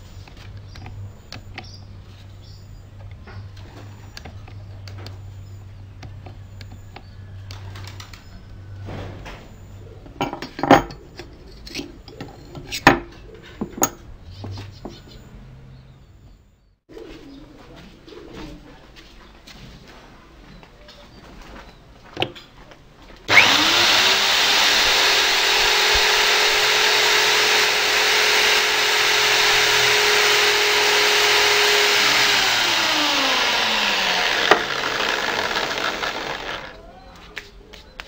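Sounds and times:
birds calling: 0.0 - 18.3.

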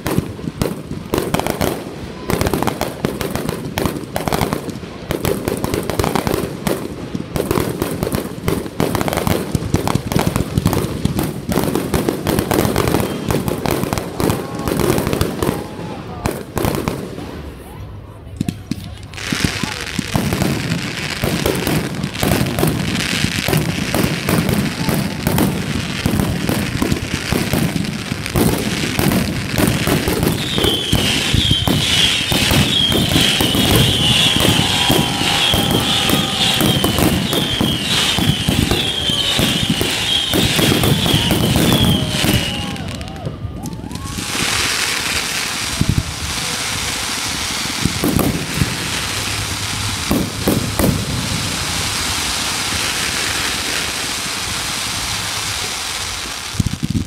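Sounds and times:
fireworks bangs and crackles: 0.0 - 57.0
fireworks hiss: 18.5 - 43.2, 43.8 - 57.0
high warbling whistle: 30.4 - 42.8.

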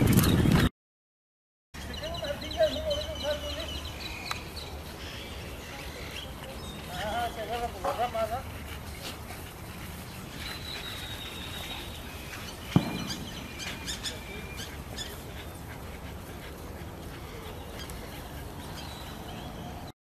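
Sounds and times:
birds calling: 1.8 - 19.9
sharp knock: 12.7 - 14.2.

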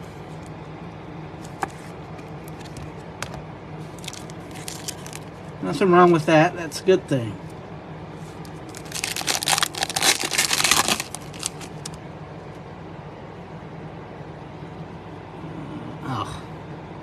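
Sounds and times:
faint steady hum: 0.0 - 17.0
foil wrapper crinkling and tearing: 4.0 - 5.3, 8.5 - 12.0.

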